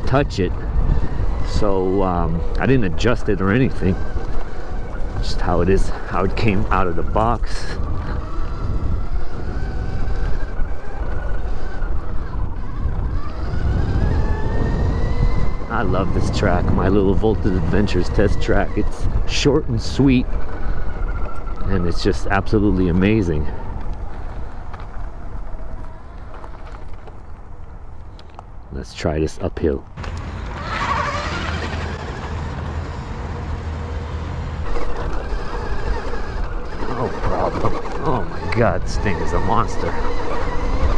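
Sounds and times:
electric motor whining: 0.0 - 27.3, 30.0 - 33.3, 34.6 - 40.9
tyre noise on dirt: 0.0 - 28.8
wind rumbling on microphone: 0.0 - 28.8, 34.6 - 40.9
tyre noise: 30.0 - 33.1, 34.6 - 40.9.

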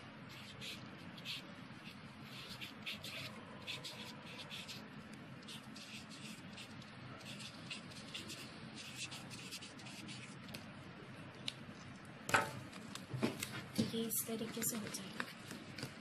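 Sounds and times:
marker pen writing on card: 0.3 - 4.8, 5.4 - 10.4.

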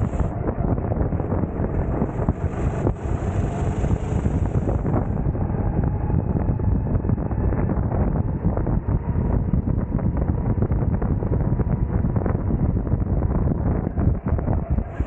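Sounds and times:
kart engine running: 0.0 - 9.7
wind buffeting microphone: 0.0 - 15.0.

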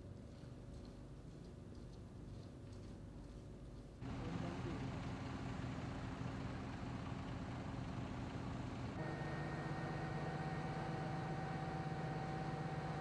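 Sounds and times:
steady hum with held tones: 4.0 - 13.0
vehicle engine running: 4.0 - 13.0.

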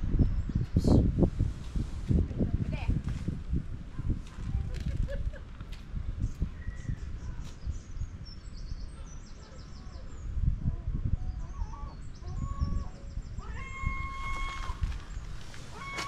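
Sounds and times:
birds chirping: 4.0 - 16.0.

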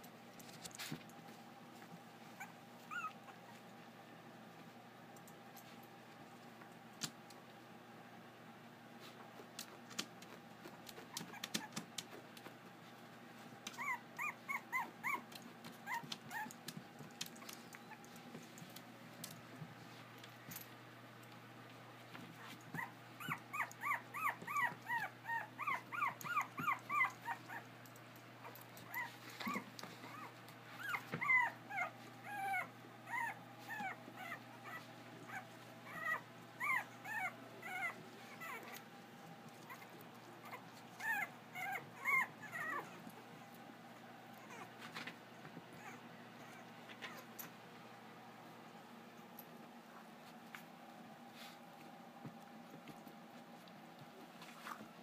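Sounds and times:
puppies whining: 2.2 - 3.7, 10.9 - 12.1, 13.7 - 18.6, 22.4 - 27.8, 28.4 - 45.1, 45.7 - 47.6.

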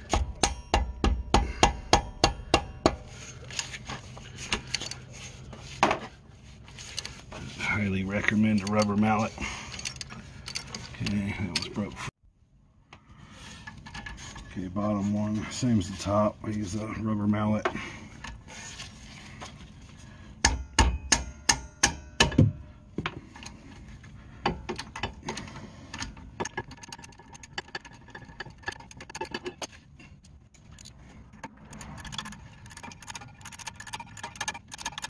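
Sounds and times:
rubber mallet striking wrench: 0.0 - 3.1, 20.4 - 22.5
tools clicking and rattling: 0.0 - 6.1, 6.7 - 12.1, 23.1 - 35.0.

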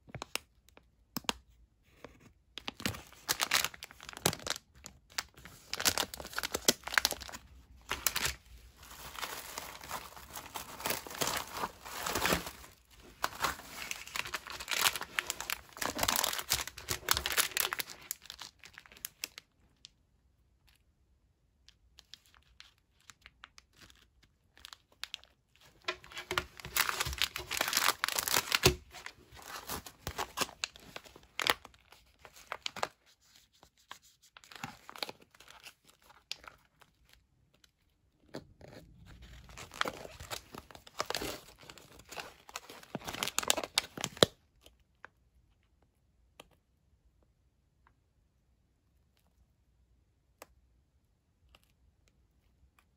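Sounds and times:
plastic packaging crinkling: 2.6 - 19.5, 22.0 - 37.2, 38.7 - 44.7.

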